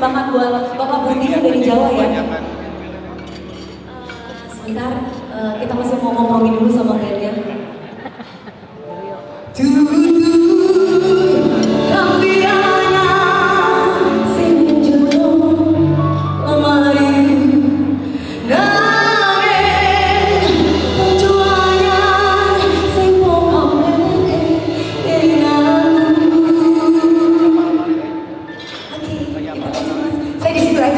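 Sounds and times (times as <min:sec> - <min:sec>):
instrumental accompaniment: 0:01.0 - 0:07.2, 0:08.6 - 0:30.9
woman singing into microphone: 0:09.4 - 0:30.9.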